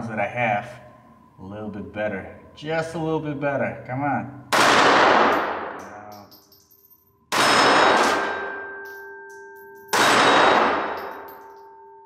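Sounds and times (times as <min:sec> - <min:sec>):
pistol shots with ringing: 0:04.5 - 0:11.8.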